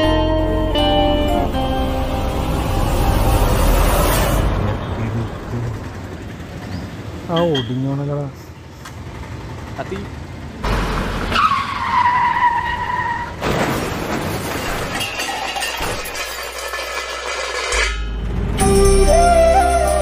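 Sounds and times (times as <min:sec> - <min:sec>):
tyres screeching in a skid: 0:11.0 - 0:18.0.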